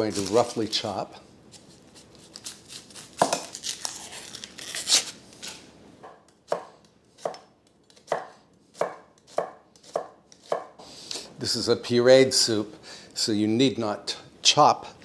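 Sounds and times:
knife chopping onion: 0:06.0 - 0:10.8.

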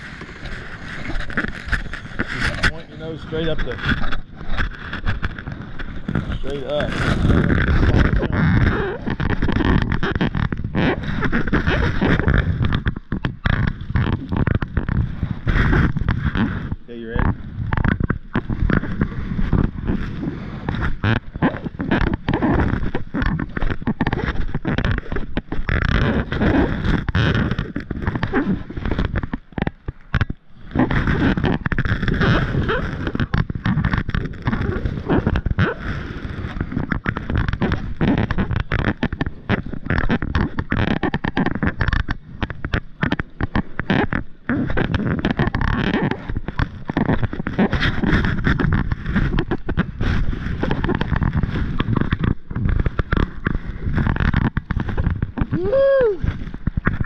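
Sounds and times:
wind buffeting microphone: 0:00.0 - 0:12.9.

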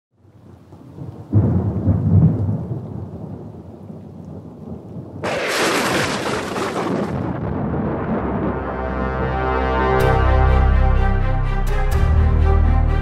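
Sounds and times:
deep rumble of thunder: 0:00.6 - 0:09.1.

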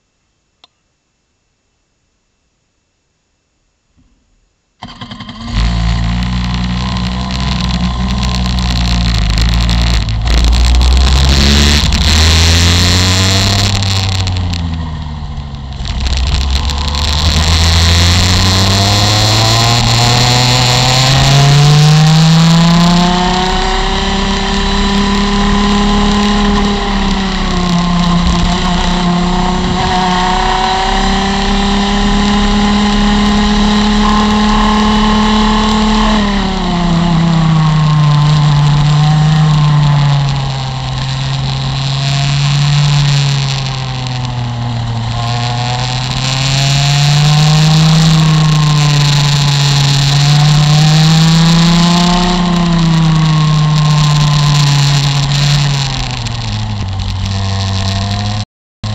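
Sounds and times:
kart engine revving: 0:04.8 - 0:58.9.

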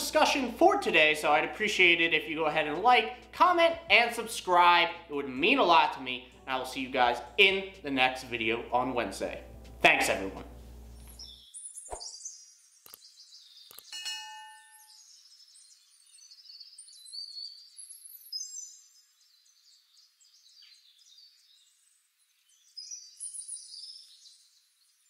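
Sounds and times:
birds chirping and whistling: 0:10.9 - 0:14.0, 0:14.8 - 0:25.0.

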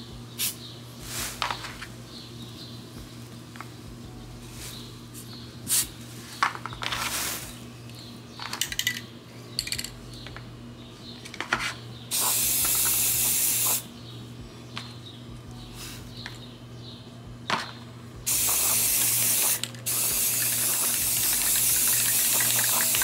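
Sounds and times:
aerosol spray can hissing: 0:05.7 - 0:05.9, 0:12.1 - 0:13.9, 0:18.3 - 0:23.0.

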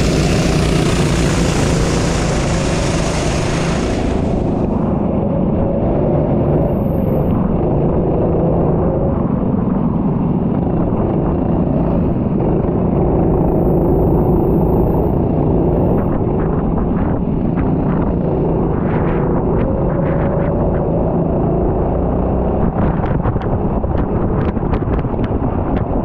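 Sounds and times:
loud hiss: 0:00.0 - 0:04.8
racing engine revving: 0:00.0 - 0:05.0.

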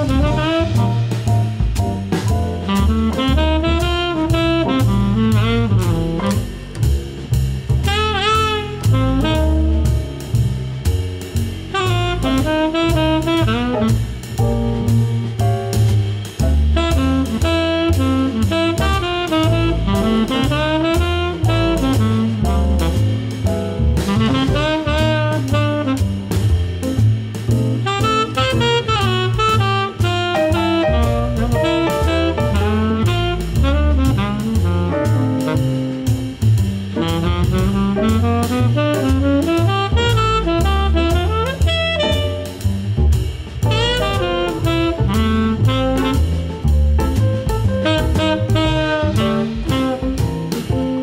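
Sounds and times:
horn melody: 0:00.0 - 0:06.7, 0:07.8 - 0:10.9, 0:11.7 - 0:27.0, 0:27.7 - 0:36.4, 0:37.0 - 0:42.9, 0:43.6 - 0:51.0
bass: 0:00.0 - 0:51.0
drum kit: 0:00.0 - 0:51.0
jazz music: 0:00.0 - 0:51.0.

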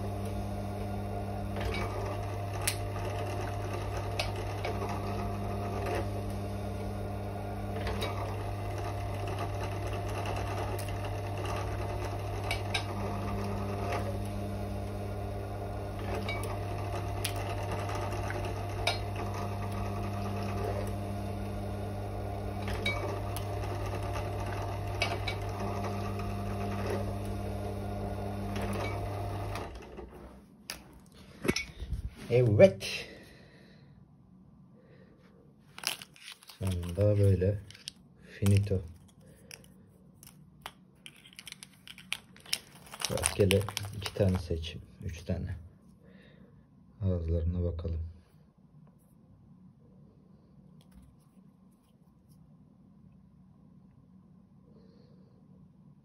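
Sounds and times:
drill press running: 0:00.0 - 0:30.4
shell crimping grind: 0:35.7 - 0:44.6
small clicks of shells handled: 0:37.6 - 0:44.2.

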